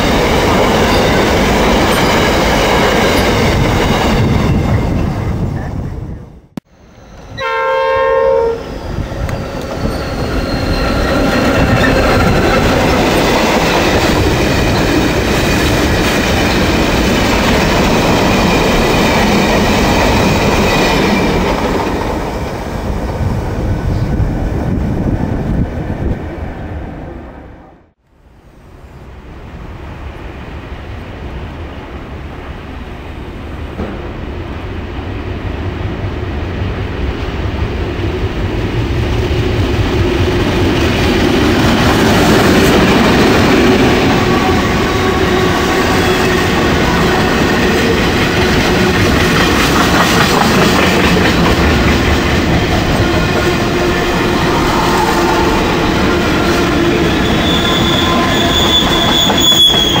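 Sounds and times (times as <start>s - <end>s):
freight train wagons rumbling: 0.0s - 26.9s, 33.6s - 60.0s
wheel squeal: 8.6s - 12.3s, 57.0s - 60.0s.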